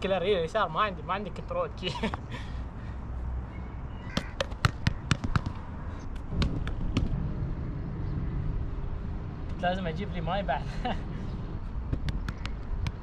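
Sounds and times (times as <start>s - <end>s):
sharp taps and knocks: 4.2s - 7.1s, 11.9s - 13.0s.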